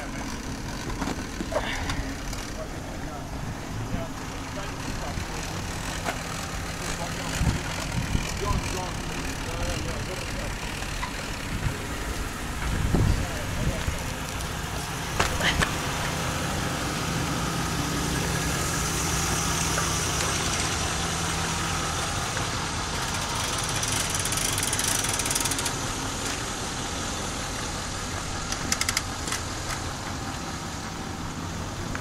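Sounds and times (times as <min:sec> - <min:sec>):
engine idling: 0:00.0 - 0:32.0
sharp clicks: 0:28.5 - 0:29.8.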